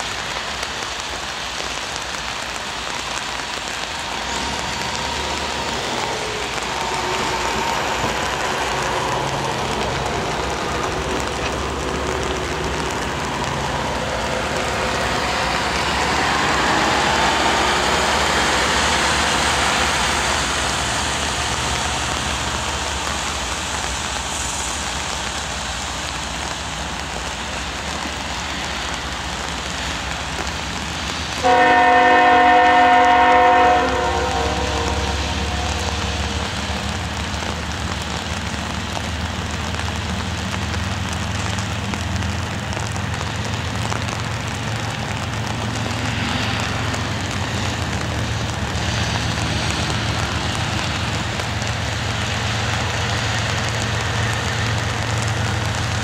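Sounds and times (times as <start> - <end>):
diesel locomotive idling: 0.0 - 56.0
heavy rain hissing: 0.0 - 56.0
locomotive horn: 31.4 - 36.4.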